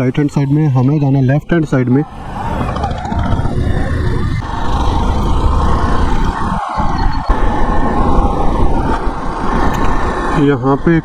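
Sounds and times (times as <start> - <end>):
wind rushing over microphone: 0.0 - 11.0
motorcycle engine rumble: 1.9 - 11.0.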